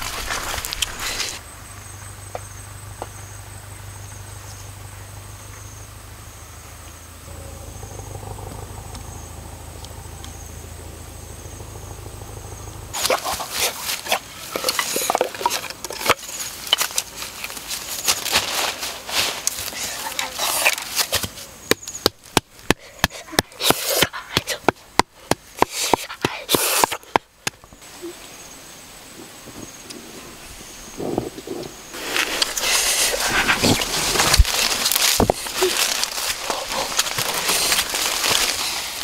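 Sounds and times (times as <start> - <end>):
branches rustling and snapping: 0.0 - 2.4, 12.8 - 27.9, 31.9 - 39.0
low steady hum: 0.0 - 13.5
insects chirping: 0.0 - 39.0.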